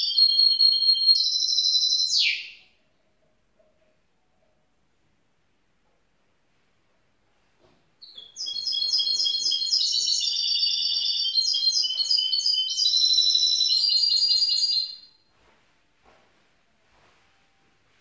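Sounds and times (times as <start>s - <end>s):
bird singing trills: 8.0s - 15.1s.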